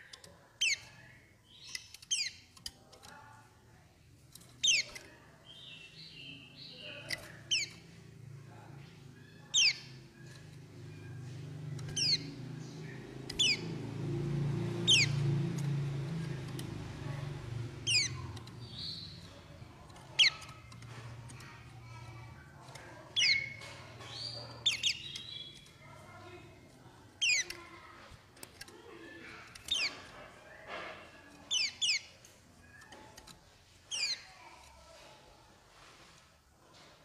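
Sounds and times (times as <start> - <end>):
bird twittering: 4.6 - 7.9, 9.0 - 13.8, 14.8 - 15.4, 17.8 - 20.8, 23.1 - 25.9, 27.2 - 27.6, 29.5 - 30.1, 31.5 - 33.1.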